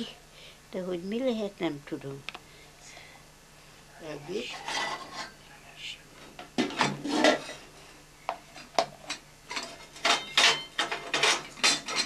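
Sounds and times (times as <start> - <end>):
pots and lids clattering: 6.4 - 7.7, 8.5 - 12.0.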